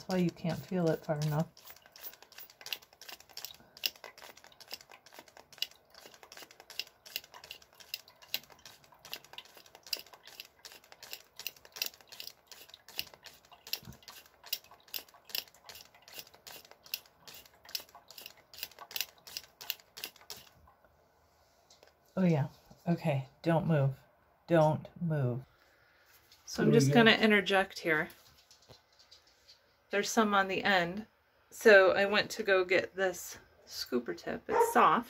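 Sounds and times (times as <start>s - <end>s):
hand pump clicking squirts: 0.0s - 20.6s.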